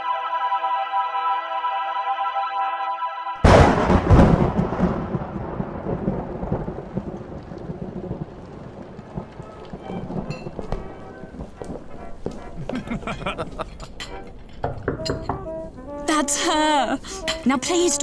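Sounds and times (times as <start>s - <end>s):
loud thunderclap: 3.4s - 12.3s
steady rainfall: 3.5s - 14.0s.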